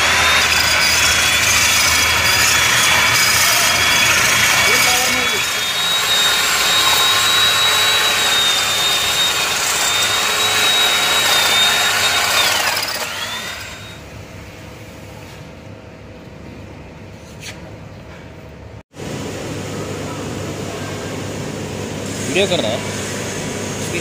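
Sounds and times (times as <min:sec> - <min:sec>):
hammer drill boring concrete: 0:00.0 - 0:14.0.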